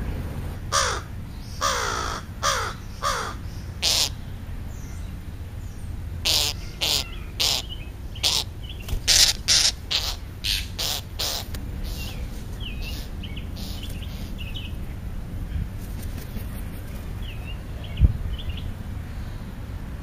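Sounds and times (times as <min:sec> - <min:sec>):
crows cawing: 0:00.7 - 0:04.2, 0:06.2 - 0:12.1, 0:12.8 - 0:14.4.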